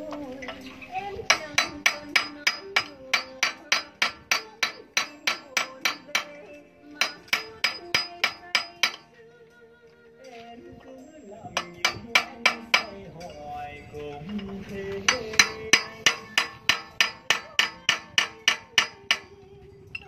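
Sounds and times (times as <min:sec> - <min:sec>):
hammer striking steel: 0:01.3 - 0:09.1, 0:11.6 - 0:13.4, 0:14.3 - 0:19.3.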